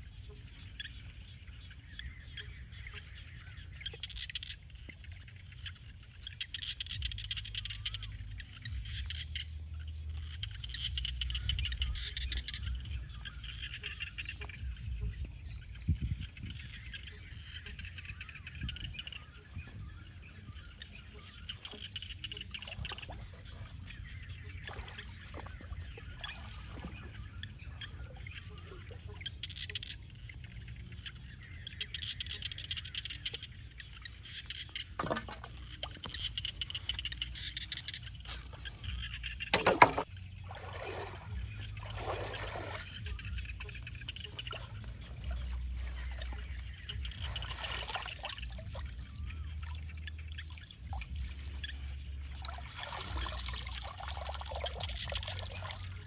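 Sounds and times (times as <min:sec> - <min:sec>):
water splashing in stream: 0:15.9 - 0:29.8, 0:34.3 - 0:56.0
high-pitched wildlife chirping: 0:41.0 - 0:56.0.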